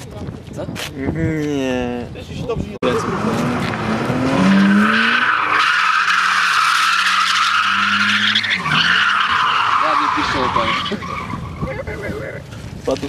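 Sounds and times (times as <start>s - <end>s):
car engine at high revs: 2.8s - 8.9s
tyres squealing: 4.4s - 12.5s.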